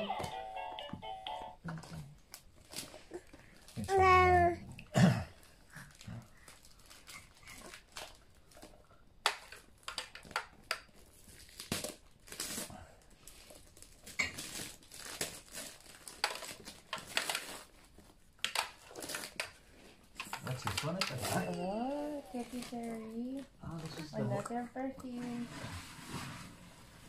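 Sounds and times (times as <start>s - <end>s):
wrapping paper crinkling and tearing: 2.2s - 4.4s, 5.4s - 24.2s.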